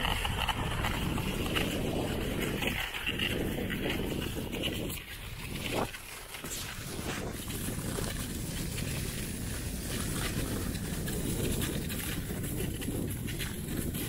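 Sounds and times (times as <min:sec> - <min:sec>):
sledge runners scraping on snow: 0:00.0 - 0:14.0.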